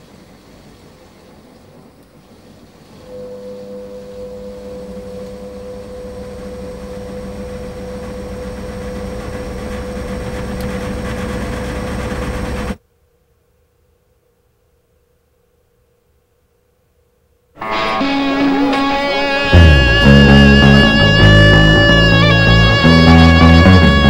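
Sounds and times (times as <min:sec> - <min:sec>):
low droning rumble: 0:19.2 - 0:24.0.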